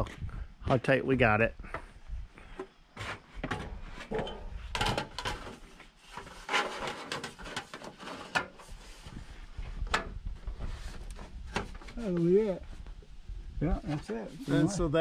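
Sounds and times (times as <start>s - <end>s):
sheet metal scraping and rattling: 3.0s - 8.7s.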